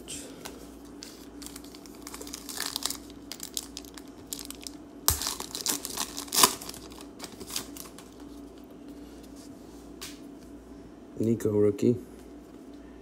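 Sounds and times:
foil wrapper tearing and crinkling: 0:01.4 - 0:08.1.

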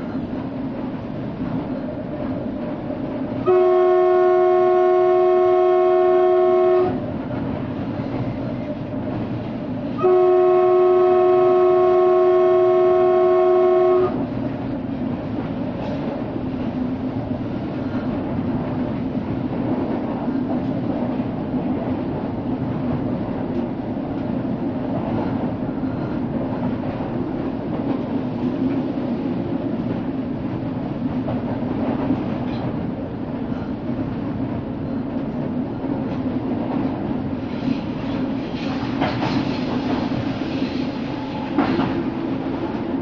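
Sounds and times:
train rumbling on track: 0:00.0 - 0:43.0
train horn blasts: 0:03.4 - 0:07.1, 0:09.9 - 0:14.3.

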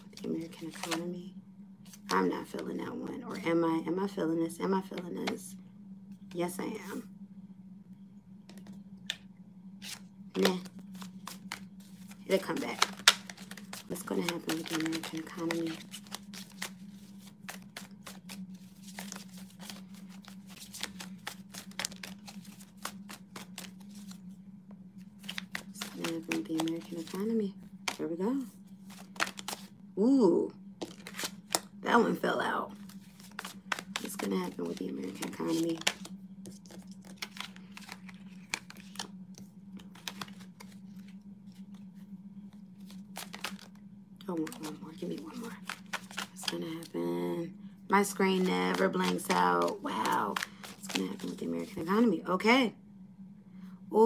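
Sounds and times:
cards being shuffled: 0:00.0 - 0:01.1, 0:01.8 - 0:02.7, 0:08.5 - 0:09.2, 0:09.8 - 0:24.2, 0:25.0 - 0:29.7, 0:30.8 - 0:31.8, 0:32.7 - 0:46.9, 0:48.0 - 0:52.0
low hum: 0:00.0 - 0:54.0.

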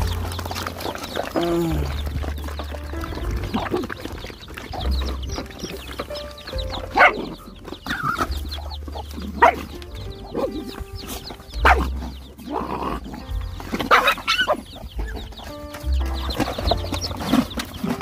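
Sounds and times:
chicks peeping: 0:00.0 - 0:18.0
dogs squabbling: 0:00.0 - 0:18.0.

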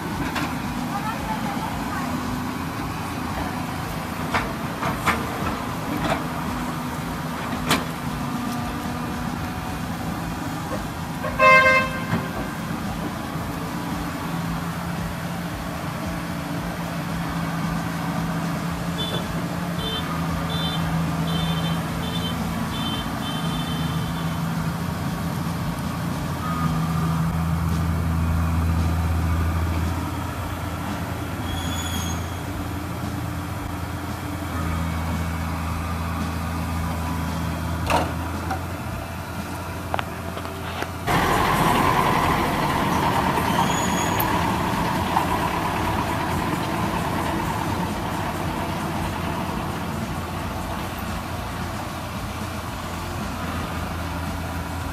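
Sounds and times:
excavator diesel engine running: 0:00.0 - 0:54.9
horn toot: 0:11.2 - 0:12.6, 0:19.0 - 0:24.5.

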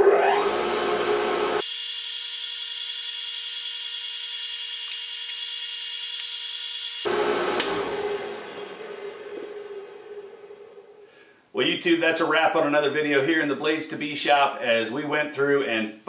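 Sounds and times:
electric motor whining: 0:00.0 - 0:09.7.

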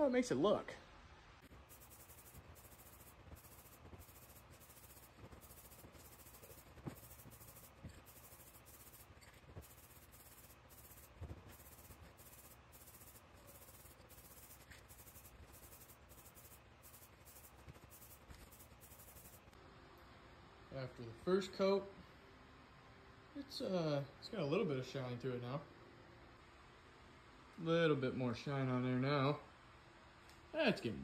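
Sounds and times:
spray can rattling while shaken: 0:01.5 - 0:19.5.

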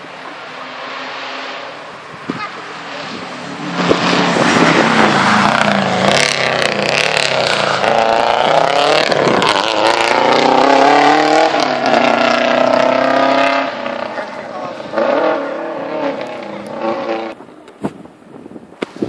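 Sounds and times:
rally car engine passing by: 0:00.0 - 0:17.4
sharp engine crackles: 0:02.4 - 0:17.4.

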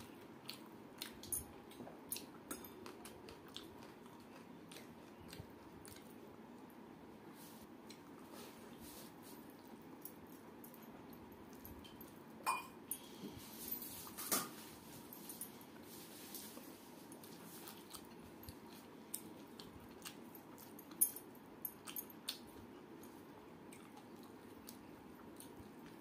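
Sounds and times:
chewing and mouth smacks: 0:00.1 - 0:06.7, 0:17.2 - 0:21.0, 0:21.7 - 0:26.0.

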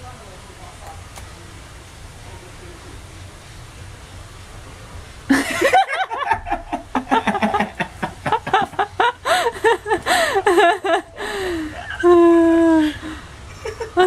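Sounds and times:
hearty laughter: 0:05.3 - 0:14.0.

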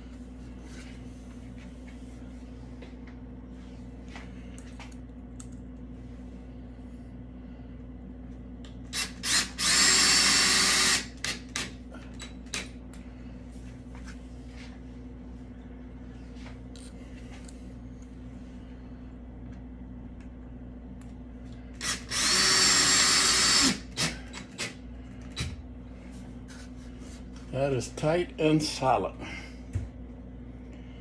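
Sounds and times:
cordless drill driving screw: 0:08.9 - 0:11.7, 0:21.8 - 0:24.8.

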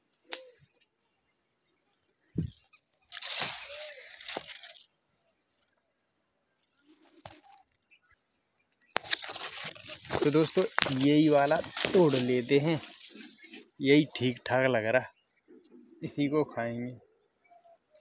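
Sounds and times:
leaves and branches rustling: 0:02.3 - 0:05.0, 0:09.0 - 0:14.6
branch snapping: 0:02.4 - 0:04.8, 0:09.0 - 0:13.6.

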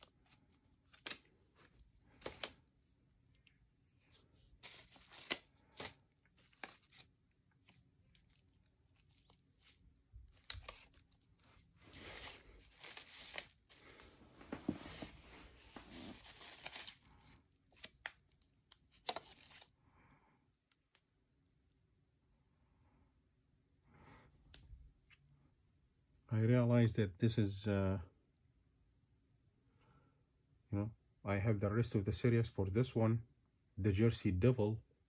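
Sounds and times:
plastic packaging crinkling: 0:04.6 - 0:15.1, 0:15.7 - 0:19.7.

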